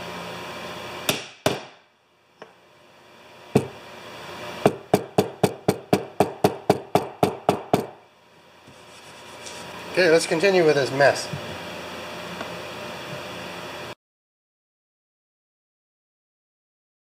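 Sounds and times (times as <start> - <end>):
hammer tapping wooden plugs: 4.7 - 8.0.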